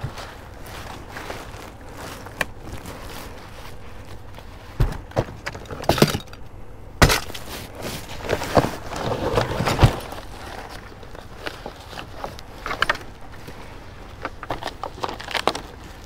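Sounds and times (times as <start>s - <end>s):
bags and papers rustling: 0.0s - 16.0s
knocks and clunks in trash can: 4.8s - 6.3s.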